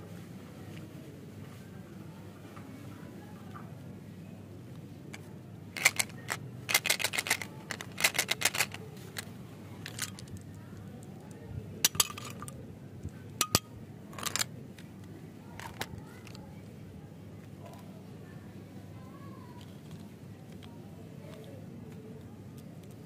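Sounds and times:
candies rattling against plastic: 5.2 - 12.6, 13.4 - 14.5, 15.5 - 16.4, 19.6 - 20.7.

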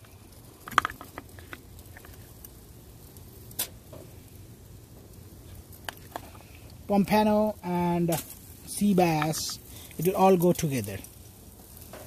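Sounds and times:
low steady background noise: 0.0 - 12.0.

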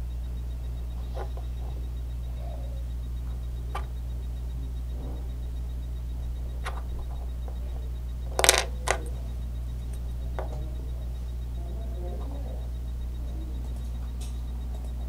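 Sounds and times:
steady low hum: 0.0 - 15.0
plastic bricks clicking: 8.3 - 9.1.

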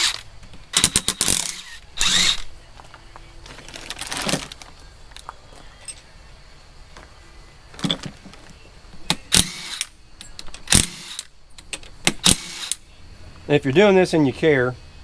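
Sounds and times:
cordless ratchet running: 0.0 - 2.4.

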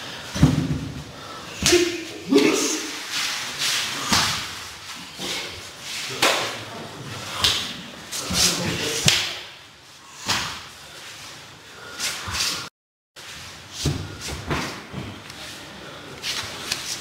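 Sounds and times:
slaps and thuds of bare skin: 9.0 - 9.4.

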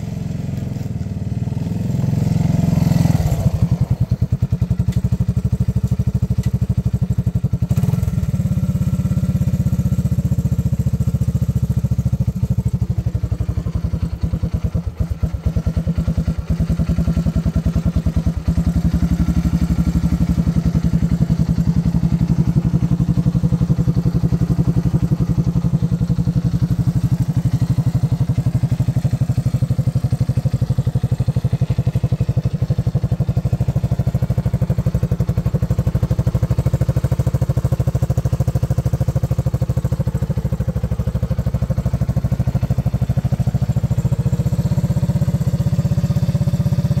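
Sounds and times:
engine idling: 0.0 - 47.0.

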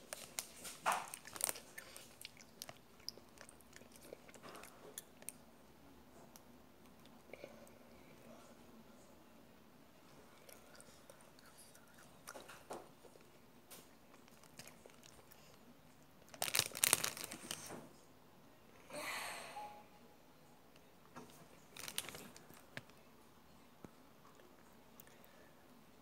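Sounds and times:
macaron shell crunching: 16.3 - 17.7.

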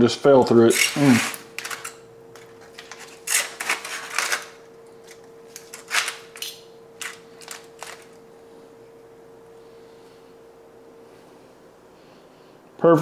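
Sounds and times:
faint steady hum: 0.0 - 13.0
knife scraping against foil: 0.7 - 2.0, 2.8 - 4.6, 5.6 - 8.1
foil crinkling: 2.6 - 8.2.

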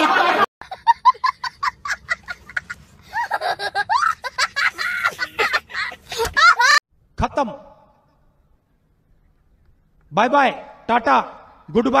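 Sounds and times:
young child laughing: 0.7 - 6.8.

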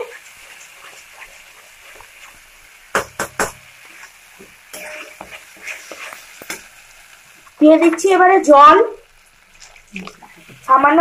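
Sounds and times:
spatula stirring thick paste: 0.0 - 2.7, 3.8 - 6.7
faint sizzling: 0.0 - 11.0
spatula knocking against pan: 2.9 - 3.6.

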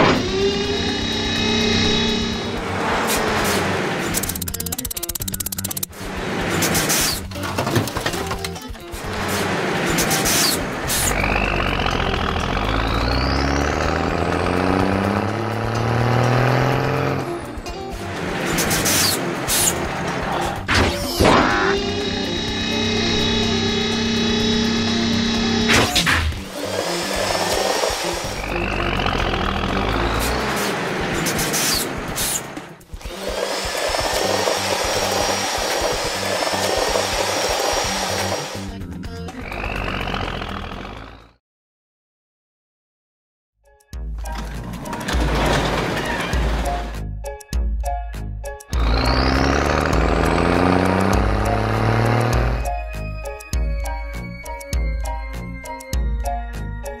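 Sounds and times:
high whine climbing: 0.0 - 5.9, 21.4 - 25.9
whirring machine noise: 0.0 - 6.9, 18.3 - 41.2
cartoon car engine revving: 0.0 - 41.4, 48.7 - 53.0
background music with bass line: 46.4 - 57.0.

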